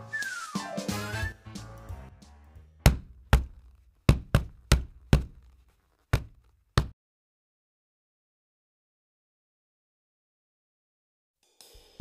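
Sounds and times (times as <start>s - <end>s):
music: 0.0s - 3.0s, 11.4s - 12.0s
blocks clacking knocks: 2.9s - 5.6s.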